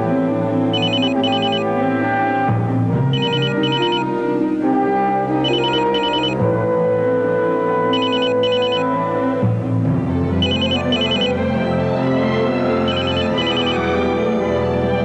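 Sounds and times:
telephone electronic double ring: 0.8 - 1.7, 3.1 - 4.1, 5.4 - 6.4, 8.0 - 8.9, 10.4 - 11.4, 12.9 - 13.9.

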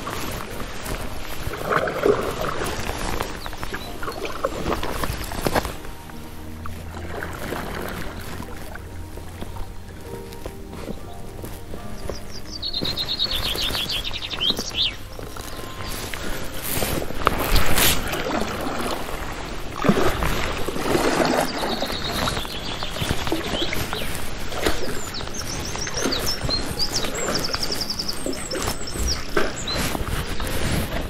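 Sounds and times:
rustling: 0.0 - 31.0
small birds chirping: 0.0 - 31.0.

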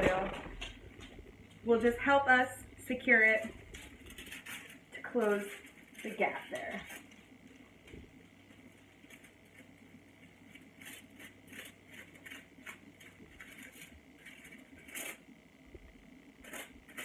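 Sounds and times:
aluminium foil crinkling: 0.0 - 17.0
comb scraping through hair: 2.9 - 7.4, 8.6 - 15.3, 16.4 - 17.0.

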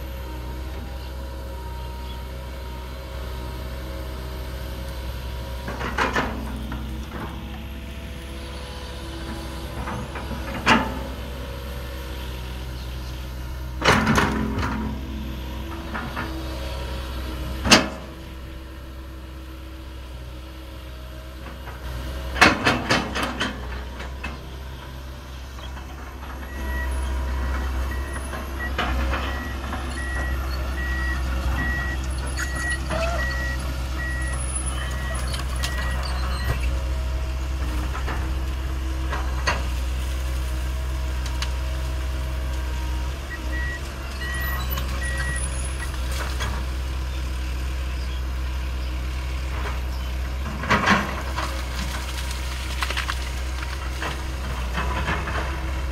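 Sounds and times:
excavator diesel engine running: 0.0 - 55.9
travel alarm beeping: 29.3 - 36.5.

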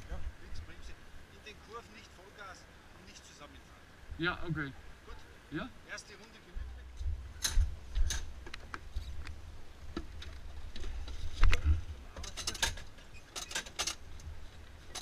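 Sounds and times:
low microphone rumble: 6.5 - 12.1.

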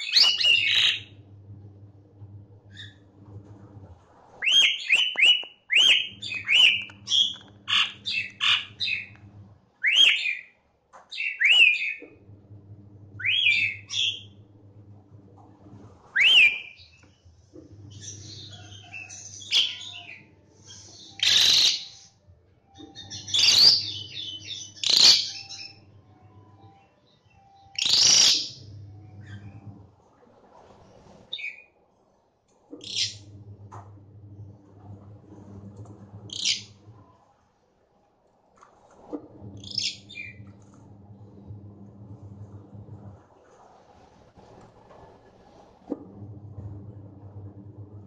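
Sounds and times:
harsh noisy bird calls: 4.4 - 9.1, 17.9 - 22.2, 22.9 - 25.8, 27.7 - 29.6
starling singing whistled notes: 4.4 - 9.1, 16.2 - 16.9, 18.0 - 22.2, 22.8 - 25.8, 26.6 - 29.5.

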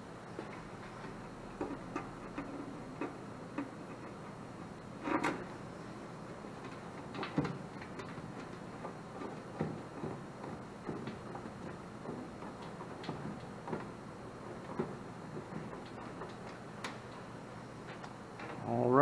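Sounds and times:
clicks and taps on sheet metal: 6.6 - 17.2.

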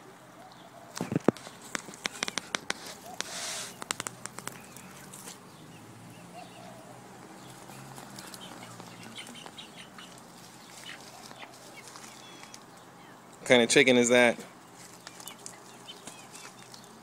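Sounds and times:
soft low hen calls: 0.0 - 17.0
sharp clicks and rustling: 0.9 - 5.4, 14.8 - 17.0
wing flapping: 0.9 - 5.5.

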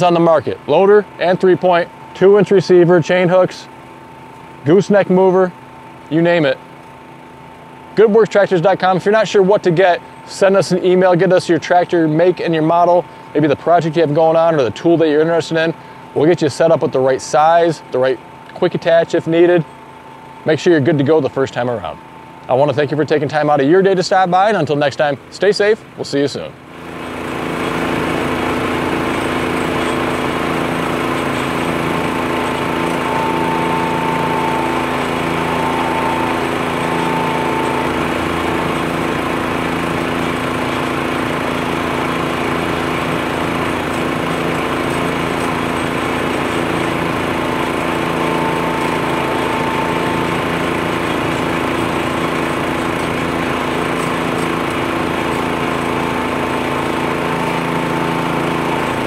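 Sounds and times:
leaf blower engine drone: 0.0 - 59.0.

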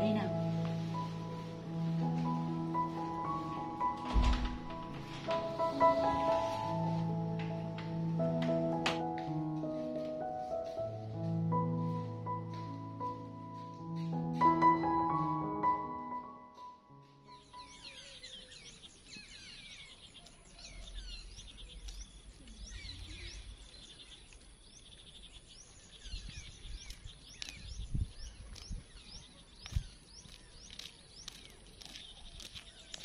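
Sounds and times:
low thumps: 3.9 - 6.2
birds chirping: 16.5 - 33.0.

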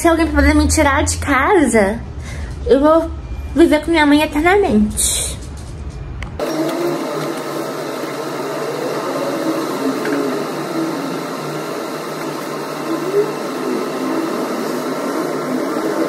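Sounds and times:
machine humming and hissing: 6.4 - 16.0.

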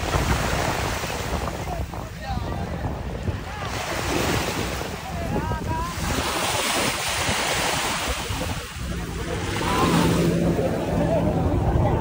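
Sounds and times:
small waves breaking on shore: 0.0 - 12.0
wind buffeting microphone: 0.0 - 12.0.

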